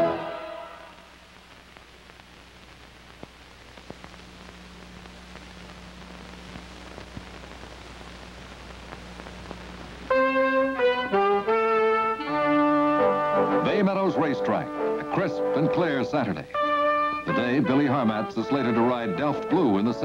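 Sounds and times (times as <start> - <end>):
steady hiss: 0.0 - 20.0
crackles and clicks: 0.9 - 11.4.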